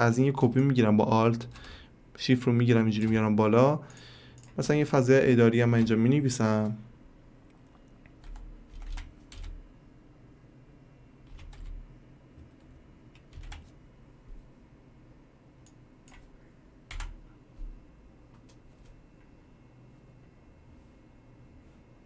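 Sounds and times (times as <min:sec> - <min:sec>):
computer keyboard typing: 0:01.4 - 0:01.8, 0:03.0 - 0:03.3, 0:03.9 - 0:04.6, 0:07.6 - 0:09.6, 0:11.2 - 0:11.8, 0:12.4 - 0:13.8, 0:15.6 - 0:16.3, 0:16.9 - 0:17.2.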